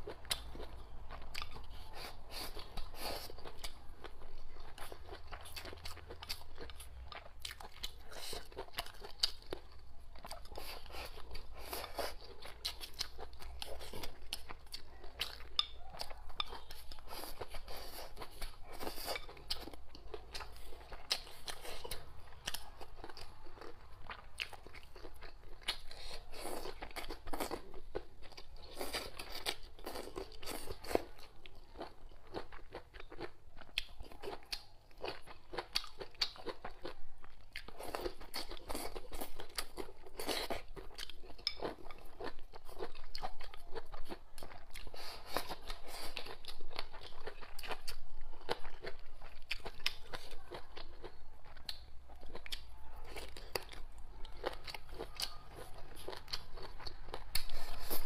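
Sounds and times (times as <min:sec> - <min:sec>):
chewing and crunching food: 0:00.0 - 0:58.0.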